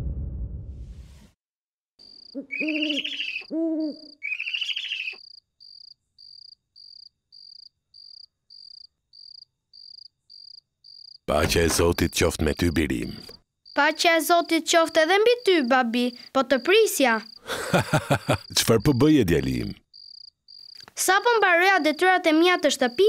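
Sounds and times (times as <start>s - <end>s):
whoosh: 0.0s - 1.4s
crickets chirping: 2.0s - 23.0s
owl hooting: 2.2s - 5.3s.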